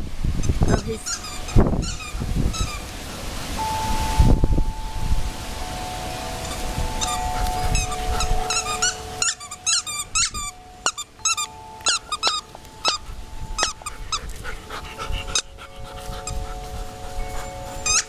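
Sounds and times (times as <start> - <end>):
dog squeaking: 0.4 - 2.9, 6.5 - 18.0.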